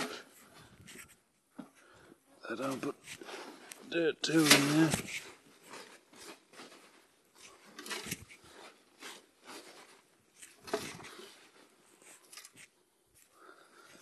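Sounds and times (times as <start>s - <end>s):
soil scraping and rustling: 4.2s - 12.2s.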